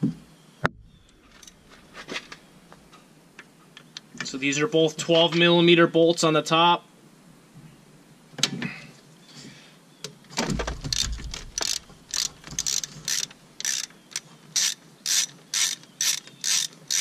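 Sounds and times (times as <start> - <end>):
ratchet wrench pawl clicks: 10.9 - 17.0.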